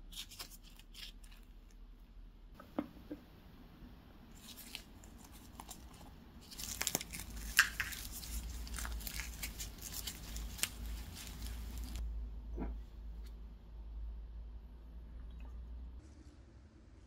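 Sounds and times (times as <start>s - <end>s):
croissant crackling as torn: 4.4s - 12.0s.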